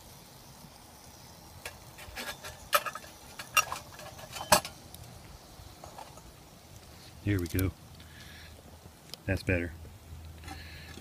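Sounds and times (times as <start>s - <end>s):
metal clinks of stove parts: 1.7s - 4.8s.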